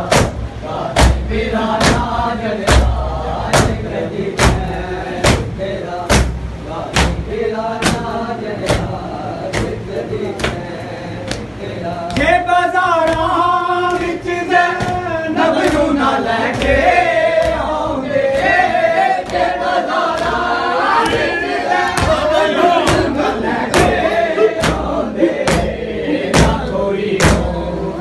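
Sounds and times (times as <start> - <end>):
men chanting together: 0.0 - 28.0
hands slapping chests: 24.6 - 25.7.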